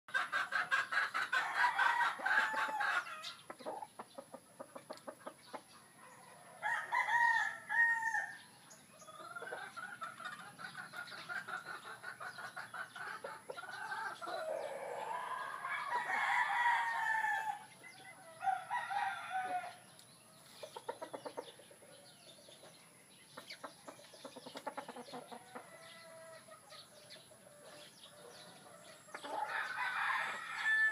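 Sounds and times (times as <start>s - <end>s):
roosters crowing: 0.1s - 3.9s, 5.8s - 19.9s, 25.0s - 30.9s.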